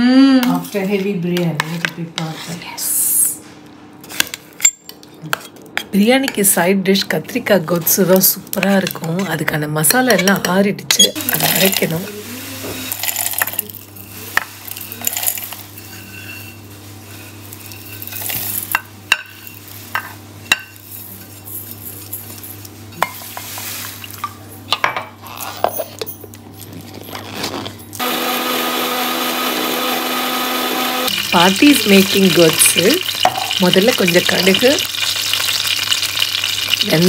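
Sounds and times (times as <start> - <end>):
nuts rattling into metal jar: 12.9 - 13.8
electric mixer grinder running: 28.0 - 37.0.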